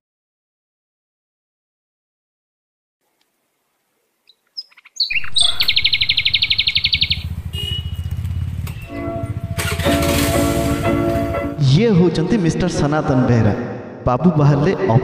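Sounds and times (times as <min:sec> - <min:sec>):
bird chirping trill: 0:04.3 - 0:10.4
musical notes: 0:07.8 - 0:11.8.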